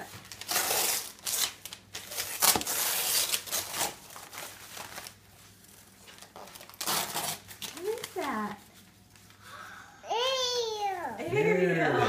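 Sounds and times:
wrapping paper ripping and crumpling: 0.0 - 9.4.

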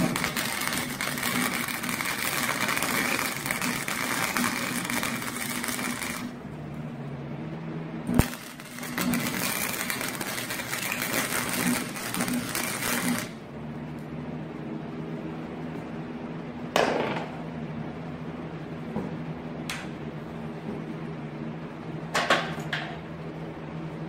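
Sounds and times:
welding arc crackling hiss: 0.0 - 6.4, 8.1 - 13.4
steady low hum: 0.0 - 24.0
loud burst of noise: 8.1 - 13.4.

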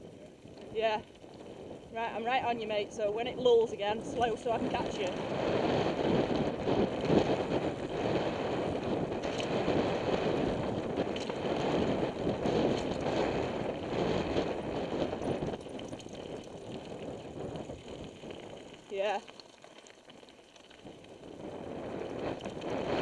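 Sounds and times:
bike rattling: 0.0 - 23.0
tyres crunching over stones: 15.2 - 21.1.

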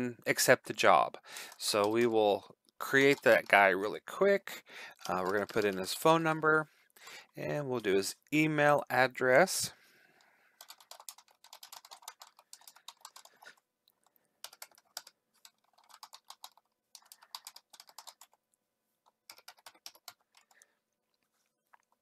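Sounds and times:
typing on computer keyboard: 1.4 - 3.7, 4.9 - 6.4, 10.6 - 18.5, 19.1 - 20.7.

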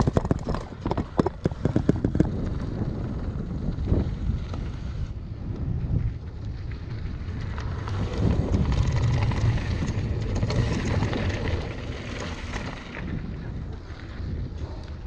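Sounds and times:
tyres rolling on gravel: 0.0 - 5.0, 5.7 - 15.0
wind buffeting microphone: 0.0 - 15.0
bike frame rattling: 5.9 - 15.0.

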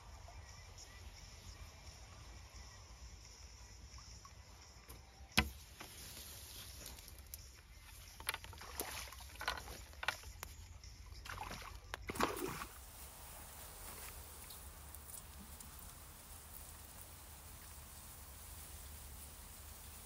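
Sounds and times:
water splashing: 8.0 - 20.0.

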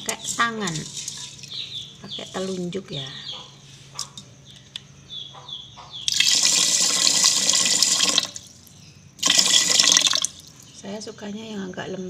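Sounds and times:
water pouring into a pot: 6.1 - 8.5, 9.2 - 10.5.

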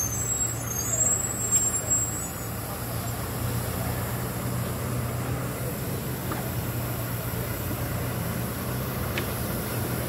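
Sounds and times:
high-pitched squeal: 0.0 - 3.2
bus engine humming: 0.0 - 10.0.

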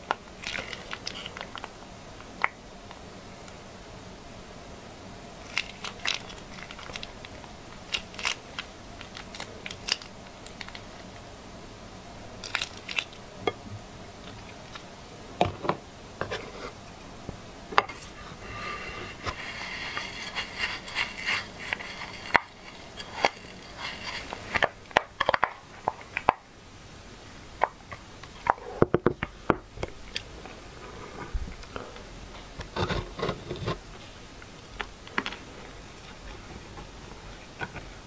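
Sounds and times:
plastic pouch crinkling: 0.4 - 1.7, 5.4 - 11.1, 12.4 - 13.2, 19.4 - 26.2.

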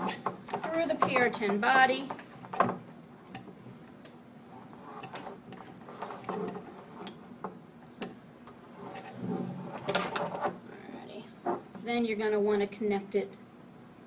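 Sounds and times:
cable rubbing through tube: 4.5 - 7.2, 8.6 - 10.6.

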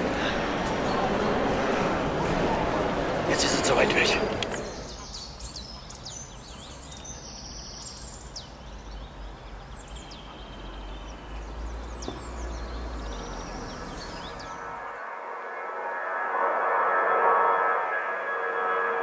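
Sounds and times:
small birds chirping: 3.2 - 15.0.

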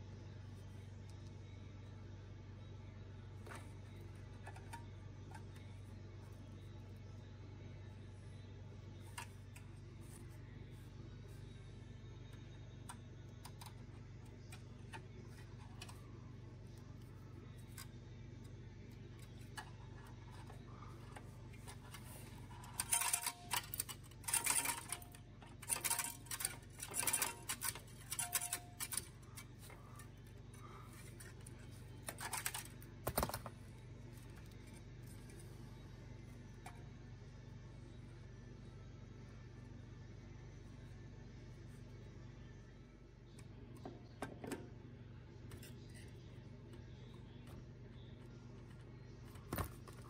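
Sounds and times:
pliers clicking and scraping wire: 12.9 - 16.0, 16.7 - 18.0, 19.0 - 33.4.

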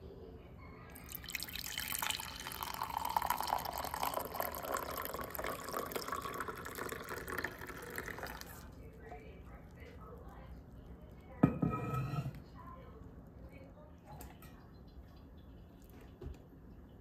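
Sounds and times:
drink pouring into ceramic mug: 0.9 - 8.9.

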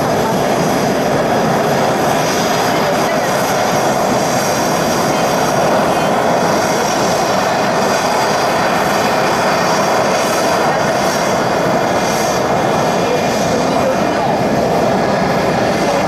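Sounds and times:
high turbine whine: 0.0 - 16.0
jet engine roar: 0.0 - 16.0.

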